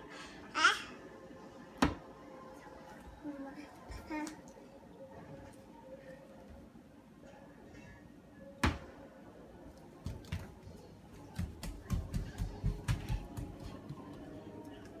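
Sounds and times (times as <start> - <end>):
footsteps on tile floor: 9.7 - 14.9.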